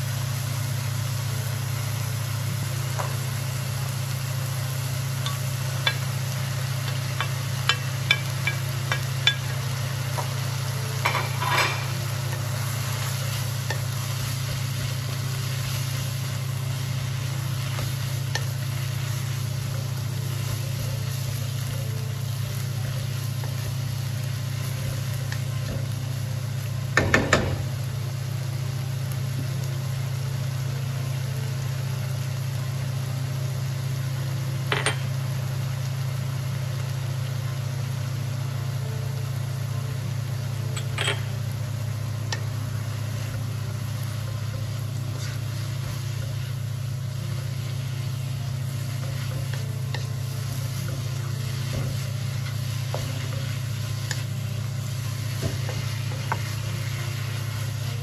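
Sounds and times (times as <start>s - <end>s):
food sizzling in a wok: 0.0s - 58.0s
knocks on pan: 27.0s - 27.7s.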